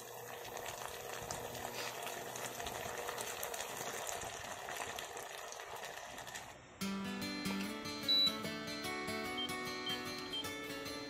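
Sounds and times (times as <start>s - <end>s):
sauce bubbling in a pan: 0.0s - 6.8s.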